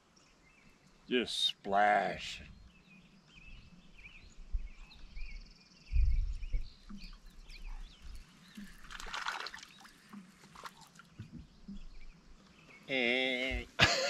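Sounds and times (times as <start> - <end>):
birds chirping: 0.0 - 14.0
water splash: 8.6 - 11.2.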